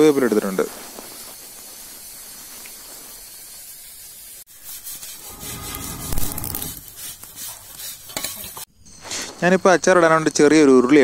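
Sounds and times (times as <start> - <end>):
fire burning with crackles: 0.0 - 8.7
steady hiss: 0.0 - 10.2.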